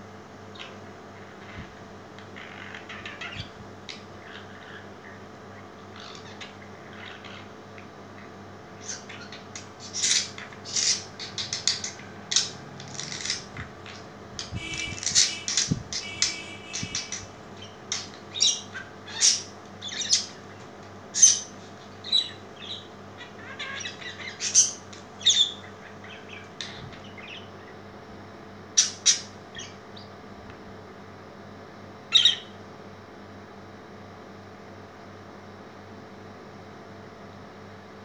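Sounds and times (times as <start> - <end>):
budgerigar chirping and squawking: 2.4 - 5.2, 6.0 - 7.5, 8.2 - 27.8, 28.8 - 30.1, 32.1 - 32.6.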